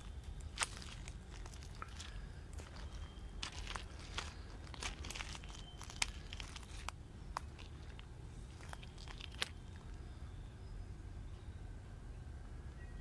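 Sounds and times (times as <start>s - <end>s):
faint clicks and crackles: 0.0s - 10.0s
low steady rumble: 0.0s - 13.0s.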